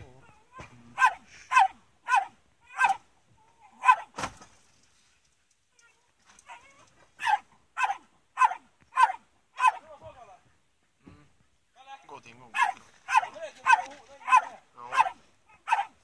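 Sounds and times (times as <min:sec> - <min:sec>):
dog barking sharply: 0:01.0 - 0:03.0, 0:03.8 - 0:04.2, 0:07.2 - 0:09.8, 0:12.5 - 0:16.0.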